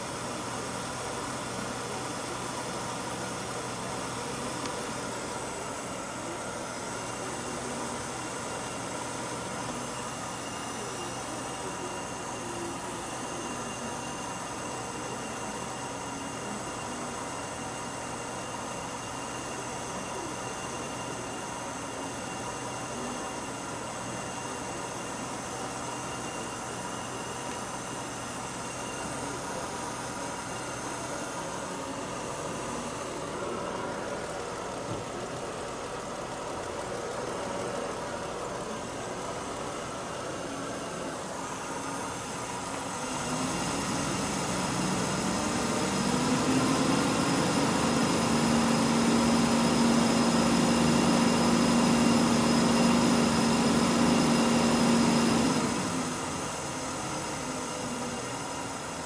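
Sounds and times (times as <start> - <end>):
car engine running: 29.7 - 57.4.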